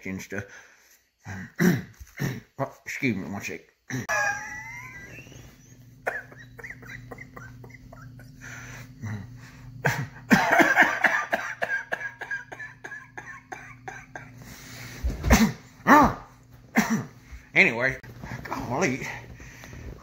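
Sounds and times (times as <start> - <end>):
man coughing: 1.3 - 2.5, 6.0 - 7.6, 9.0 - 14.4, 15.2 - 16.0, 16.7 - 17.2.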